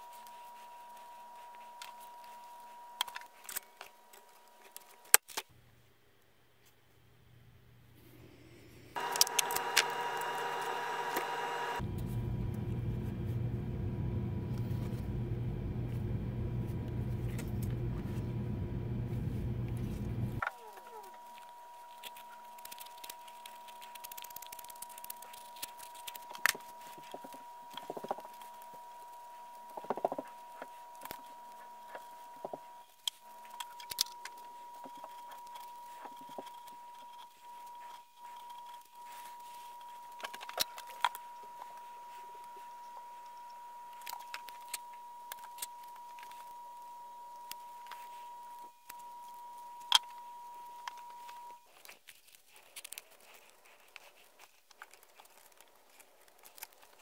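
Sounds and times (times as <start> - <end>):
drill press motor running: 9.0 - 14.9.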